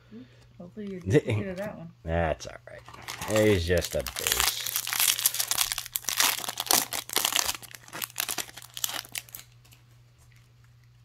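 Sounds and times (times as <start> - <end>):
wrapper crinkling as torn open: 2.8 - 9.8.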